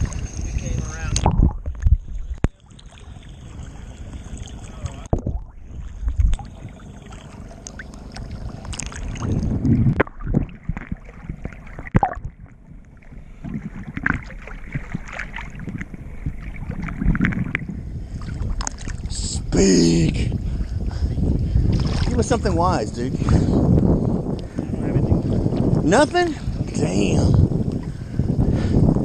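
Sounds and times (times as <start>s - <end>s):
small waves sloshing and splashing: 0.0s - 19.2s, 20.6s - 22.4s
wind on microphone: 0.0s - 29.0s.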